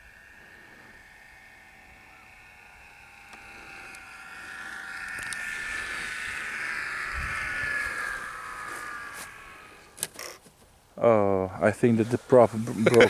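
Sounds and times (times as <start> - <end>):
electric motor and propeller whining: 0.0 - 13.0.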